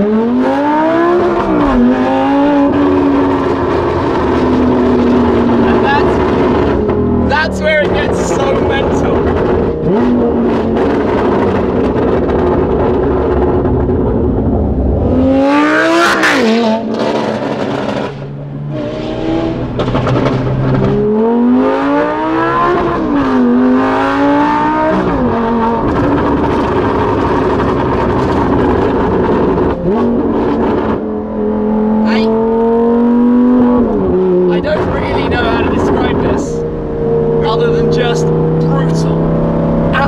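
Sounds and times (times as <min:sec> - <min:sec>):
sports car engine revving: 0:00.0 - 0:40.0
exhaust crack: 0:01.2 - 0:21.6, 0:24.6 - 0:31.4.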